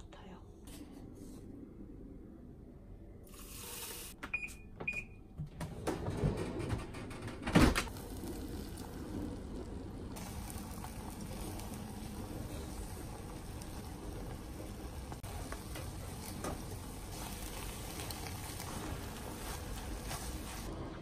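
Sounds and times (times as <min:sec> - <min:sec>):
microwave beeps: 0:04.2 - 0:05.4
microwave running hum: 0:04.2 - 0:21.0.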